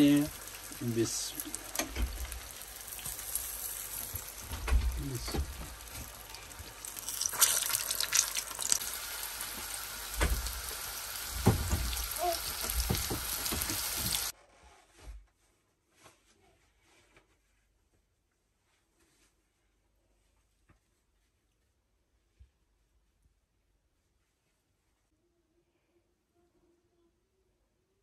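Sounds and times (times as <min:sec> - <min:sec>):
fish deep-frying sizzle: 0:00.0 - 0:14.3
utensil knocking in pan: 0:11.4 - 0:14.3.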